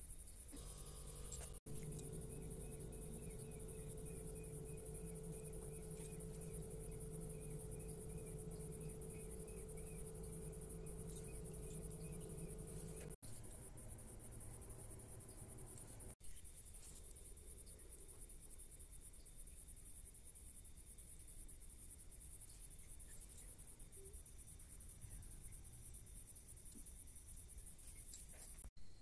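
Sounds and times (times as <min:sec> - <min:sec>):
low steady hum: 0:00.0 - 0:20.9
crickets chirping: 0:00.0 - 0:29.0
insect-like chirp: 0:00.0 - 0:29.0.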